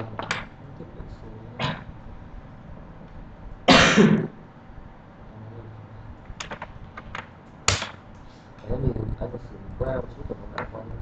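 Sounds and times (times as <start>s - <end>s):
person coughing: 3.7s - 4.4s.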